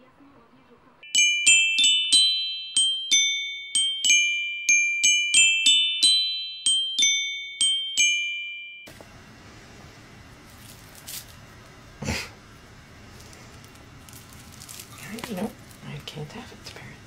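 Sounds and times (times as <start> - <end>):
faint room noise: 0.0 - 1.4
slow high chiming melody: 1.0 - 8.9.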